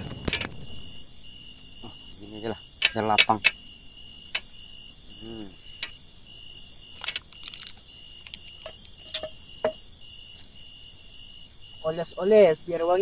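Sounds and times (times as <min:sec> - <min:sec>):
insects chirping: 0:00.0 - 0:13.0
clicks and knocks of handling: 0:02.8 - 0:03.6, 0:06.9 - 0:09.8.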